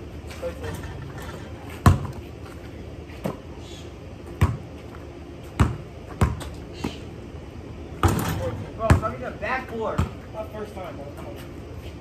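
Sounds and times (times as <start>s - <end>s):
basketball bouncing on concrete: 1.7s - 2.2s, 4.2s - 7.0s, 8.0s - 10.2s.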